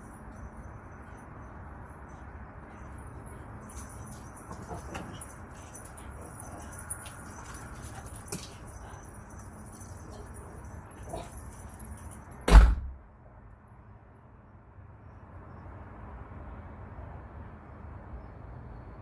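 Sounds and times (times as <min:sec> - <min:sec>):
metal door slamming: 0:12.4 - 0:13.0.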